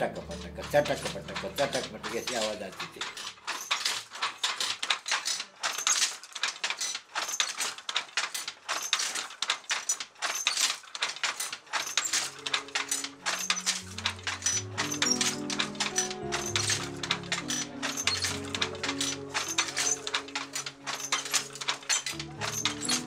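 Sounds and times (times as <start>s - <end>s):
background music with low notes: 0.0s - 3.3s, 12.0s - 23.0s
wooden handloom clacking: 0.0s - 23.0s.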